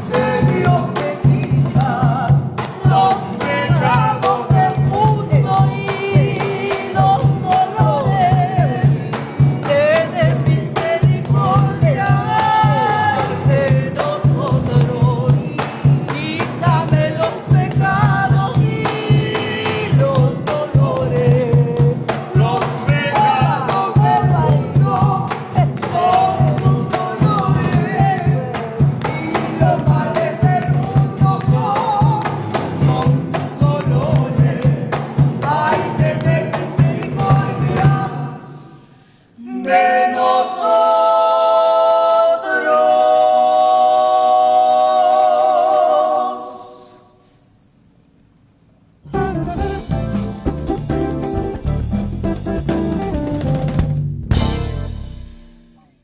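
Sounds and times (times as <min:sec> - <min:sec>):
cajon beat: 0:00.0 - 0:38.5, 0:49.0 - 0:56.0
women singing: 0:00.0 - 0:38.6, 0:39.4 - 0:47.2
handclaps: 0:02.6 - 0:03.2, 0:20.5 - 0:30.0
classical guitar: 0:49.1 - 0:54.9.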